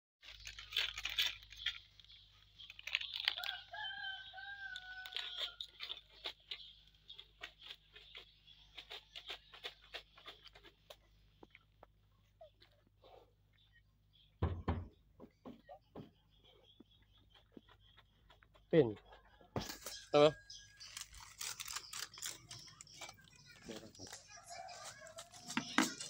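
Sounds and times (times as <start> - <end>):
rooster crowing: 3.4 - 5.7.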